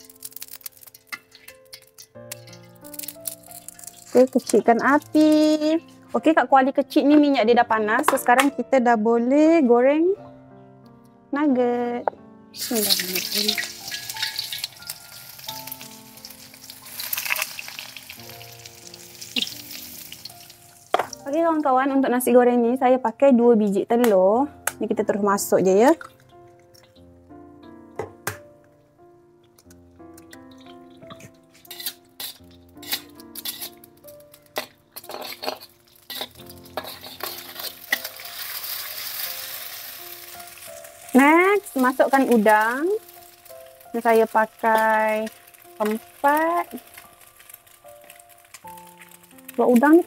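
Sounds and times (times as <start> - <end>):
food sizzling in hot oil: 0.0 - 6.2, 12.6 - 21.7, 30.2 - 50.0
oil crackling: 0.0 - 6.2, 12.6 - 21.7, 25.9 - 27.2, 29.5 - 50.0
metal spatula scraping a wok: 0.2 - 4.4, 31.1 - 33.9, 34.5 - 39.9.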